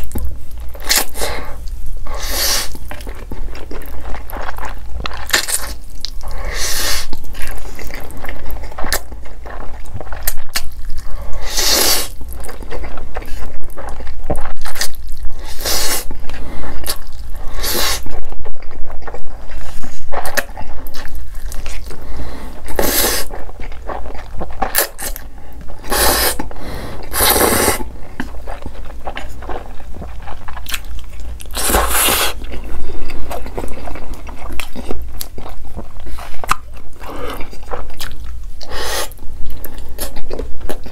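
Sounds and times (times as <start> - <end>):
wet chewing: 0.0 - 40.9
noodle slurping: 25.8 - 27.9, 31.5 - 34.1.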